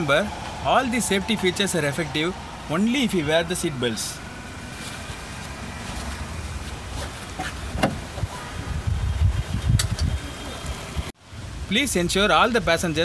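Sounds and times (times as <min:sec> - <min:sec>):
low rumble: 0:00.0 - 0:07.0
seat belt webbing drawing out: 0:06.8 - 0:08.2.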